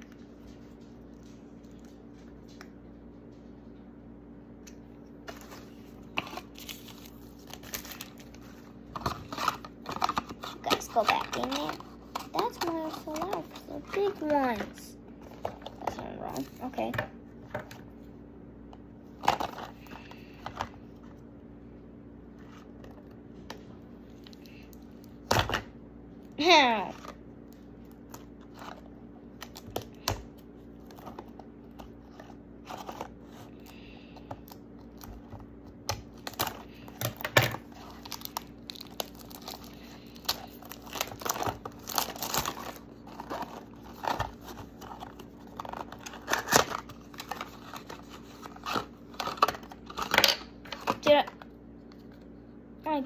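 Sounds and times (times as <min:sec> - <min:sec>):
plastic wrapping crinkling: 0:05.2 - 0:16.6, 0:36.1 - 0:51.0.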